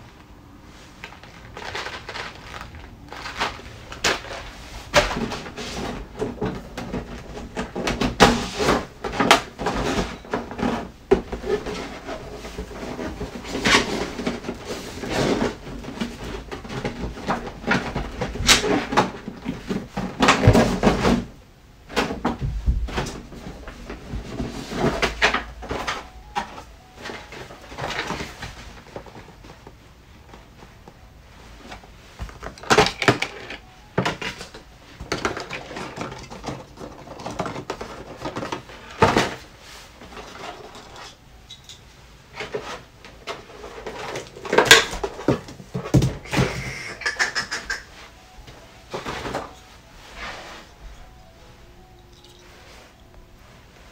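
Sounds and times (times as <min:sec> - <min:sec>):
hands handling packaging: 0:00.9 - 0:21.3.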